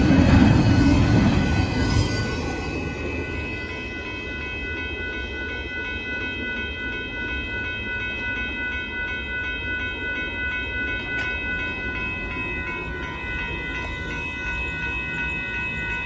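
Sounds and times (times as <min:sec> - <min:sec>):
freight train rumbling: 0:00.0 - 0:16.0
railroad crossing bells ringing: 0:00.0 - 0:16.0.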